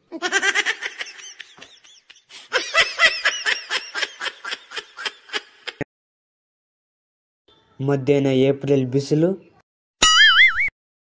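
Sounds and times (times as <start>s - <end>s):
high-pitched laughter sound effect: 10.0s - 10.7s.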